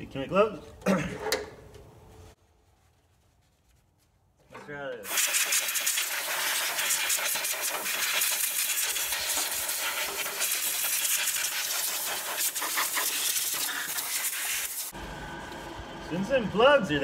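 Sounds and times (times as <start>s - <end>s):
compressed air hissing: 5.1s - 15.0s.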